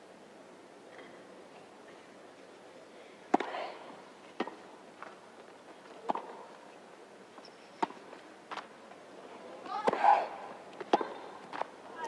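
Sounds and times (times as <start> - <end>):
tennis ball struck by rackets: 3.3 - 3.6, 4.4 - 4.6, 6.0 - 6.5, 7.8 - 8.6, 9.7 - 11.7.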